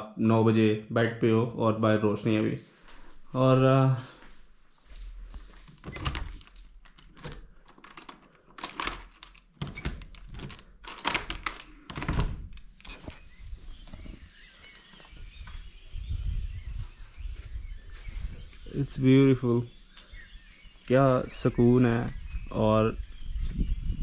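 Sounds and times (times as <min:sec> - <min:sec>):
door handle clicks and knocks: 0:05.8 - 0:12.6
door thunk swinging open: 0:05.8 - 0:13.2
chorus of insects: 0:08.3 - 0:24.0.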